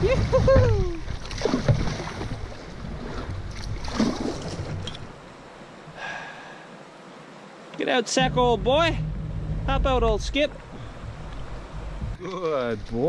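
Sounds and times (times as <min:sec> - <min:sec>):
water sloshing along canoe hull: 0:00.0 - 0:06.0, 0:07.0 - 0:12.2
wind buffeting microphone: 0:08.2 - 0:12.2.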